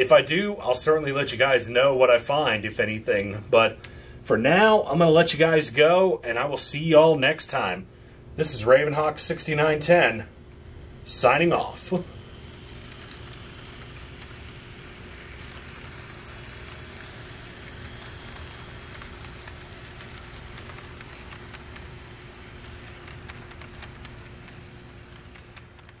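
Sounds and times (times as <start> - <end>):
model train wheels on rails: 8.9 - 26.0.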